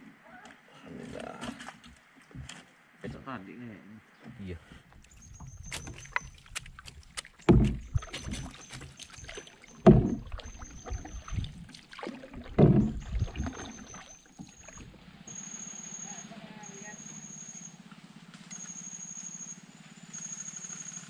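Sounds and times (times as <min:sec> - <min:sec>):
paddle swishing in water: 0:01.0 - 0:02.8, 0:04.2 - 0:15.4.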